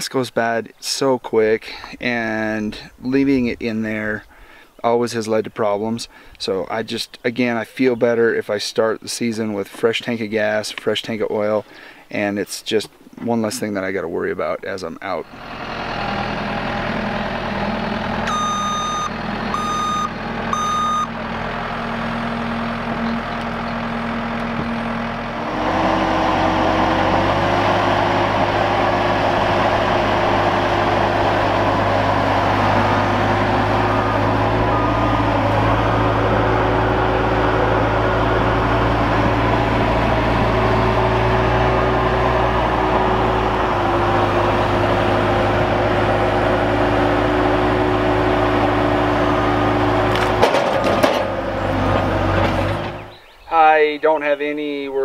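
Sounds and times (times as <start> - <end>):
loader engine running: 15.1 - 53.3
reversing beeps: 18.3 - 21.1.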